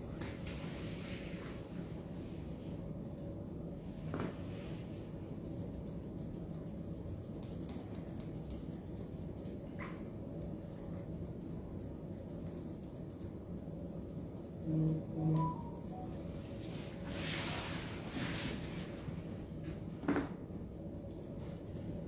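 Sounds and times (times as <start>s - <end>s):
steady low hum: 0.0s - 22.0s
scissors snipping fur: 4.2s - 16.4s, 20.6s - 22.0s.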